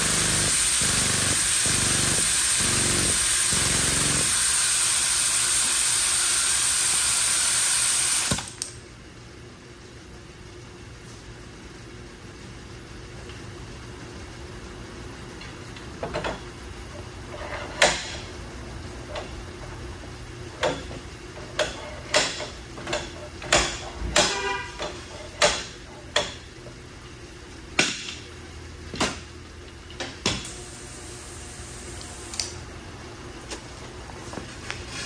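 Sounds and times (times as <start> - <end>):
steady low hum: 8.5 - 35.0.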